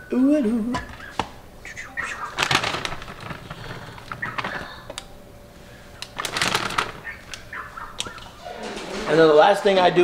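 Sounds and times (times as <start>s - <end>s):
plastic bag crinkling: 2.0s - 5.1s, 5.8s - 7.5s.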